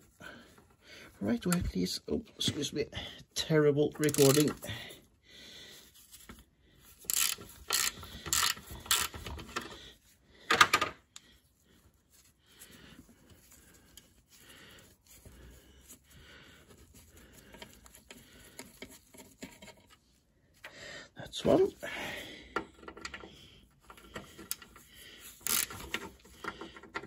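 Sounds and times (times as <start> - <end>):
faint handling noises: 0.0 - 5.1, 5.7 - 27.0
socket ratchet clicks: 4.0 - 4.5, 7.1 - 9.2, 25.4 - 26.0.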